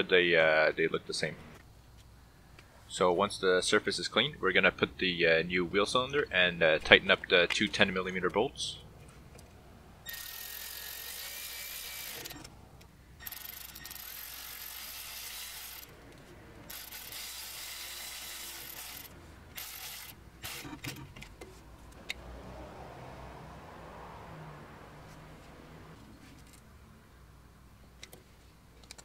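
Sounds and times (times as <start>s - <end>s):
socket ratchet clicking: 13.2s - 15.9s.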